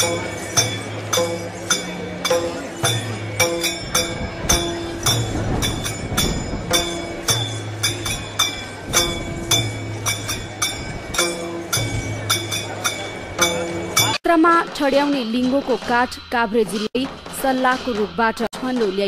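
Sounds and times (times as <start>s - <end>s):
low held musical tones: 0.0s - 14.2s
sharp metallic clinks: 0.0s - 14.2s.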